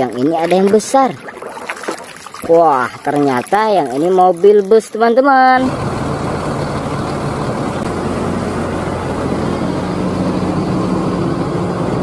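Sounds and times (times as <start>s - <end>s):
diesel coach engine idling: 5.5s - 12.0s.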